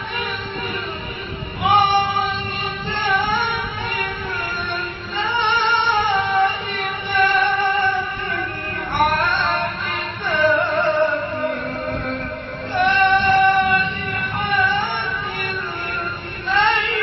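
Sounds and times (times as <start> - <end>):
person chanting recitation: 0.0 - 17.0.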